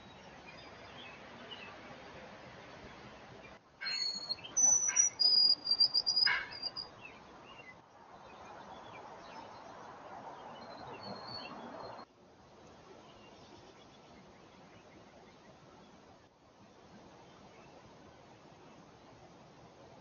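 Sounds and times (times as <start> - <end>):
faint bird chirps: 3.4 - 9.7
songbird whistling: 3.8 - 6.9.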